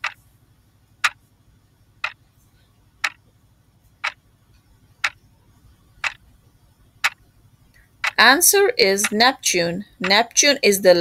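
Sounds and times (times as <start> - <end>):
clock ticking: 5.0 - 5.2, 6.0 - 6.2, 8.0 - 9.4, 10.0 - 10.4.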